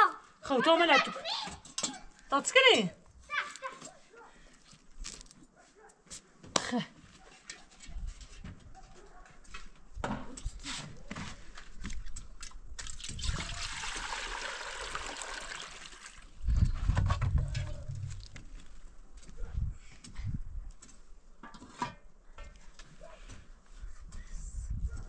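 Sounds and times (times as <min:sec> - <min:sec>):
water trickling: 0:12.8 - 0:16.3.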